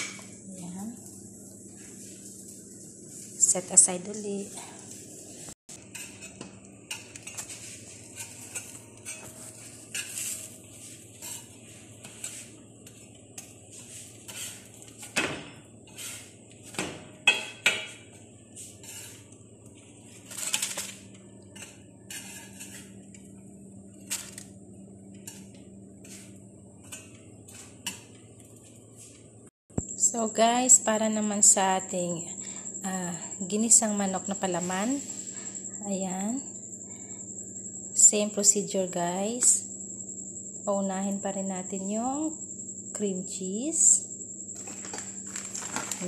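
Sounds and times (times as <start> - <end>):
faint steady hum: 0.0 - 46.0
metal spatula scraping on griddle: 5.8 - 15.2, 15.8 - 16.6, 18.6 - 19.3, 20.2 - 23.0, 25.2 - 28.2.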